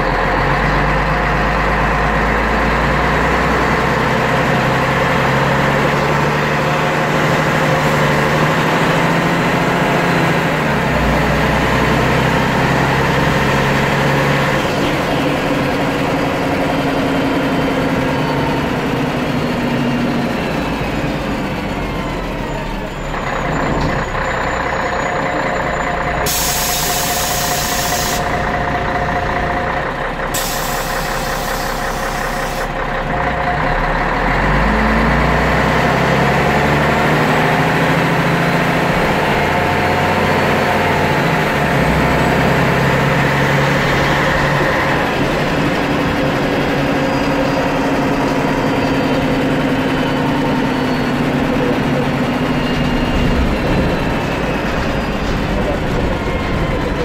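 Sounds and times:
bus diesel engine accelerating: 0:00.0 - 0:57.0
air hiss: 0:26.3 - 0:28.3.

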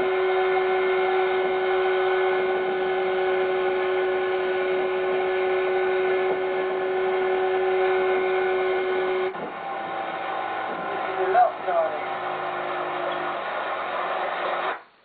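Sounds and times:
outboard motor running flat out: 0:00.0 - 0:14.8.

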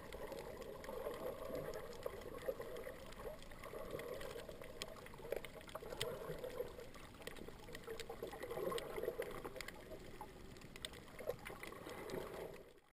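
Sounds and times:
faint clicks: 0:00.0 - 0:12.9.

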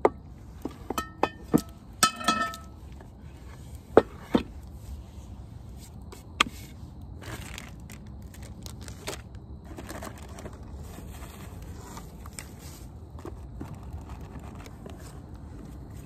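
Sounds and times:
soft rustling and scraping: 0:02.5 - 0:16.0.

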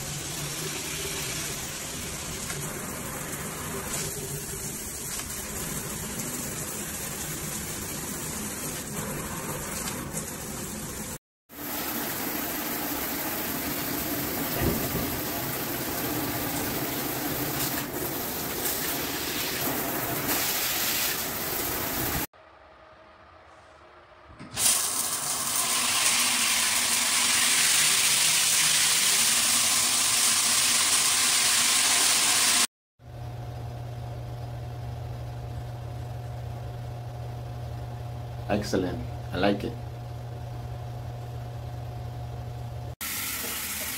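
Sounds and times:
shower spraying on tiled wall: 0:00.0 - 0:22.3, 0:24.6 - 0:32.7, 0:43.0 - 0:43.9.

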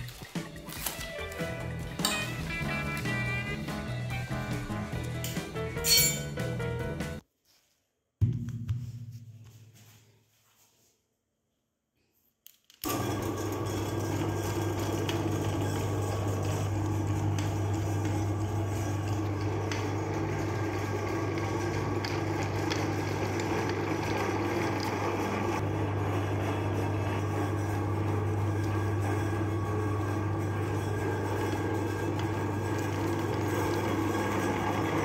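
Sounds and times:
meat grinder motor humming: 0:12.8 - 0:35.0.

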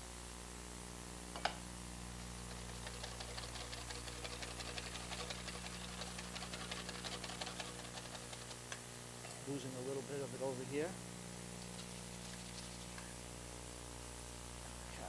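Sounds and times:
whisk clicking in metal bowl: 0:02.5 - 0:08.8.

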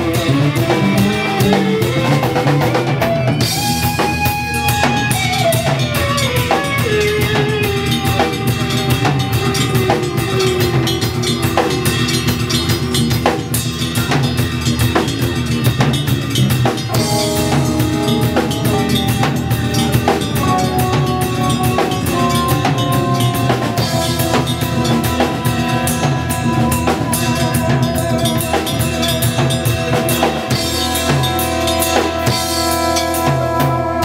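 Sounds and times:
jazz metal band playing: 0:00.0 - 0:34.0
gliding lead note: 0:16.9 - 0:34.0.

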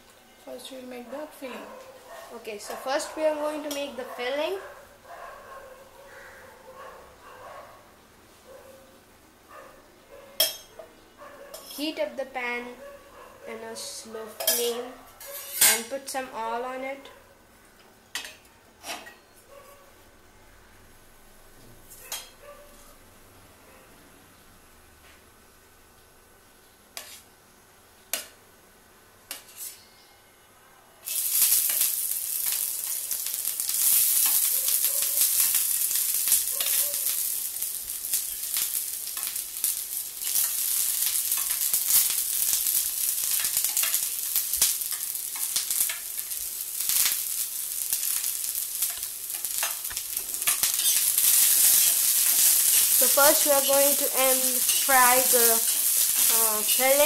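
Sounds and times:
onion sizzling in hot oil: 0:02.6 - 0:04.0, 0:13.8 - 0:16.5, 0:31.0 - 0:57.0
metal spatula scraping a pan: 0:14.4 - 0:15.9, 0:27.0 - 0:27.3, 0:29.3 - 0:29.9, 0:48.8 - 0:57.0.

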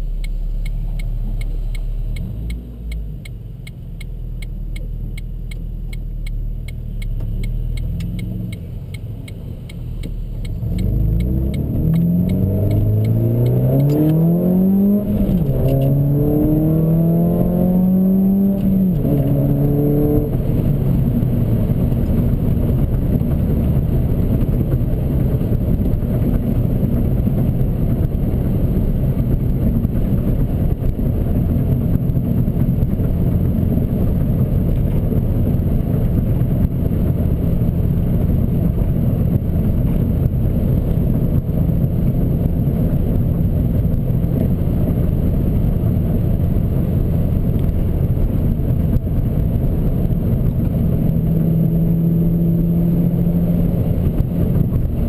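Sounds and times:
road noise: 0:00.0 - 0:55.0.

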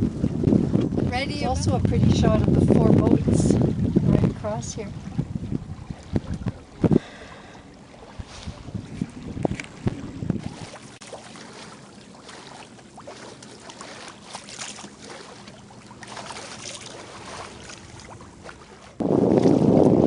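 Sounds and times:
wind on the microphone: 0:00.0 - 0:10.9, 0:17.2 - 0:20.0
water rushing along a hull: 0:00.0 - 0:20.0.

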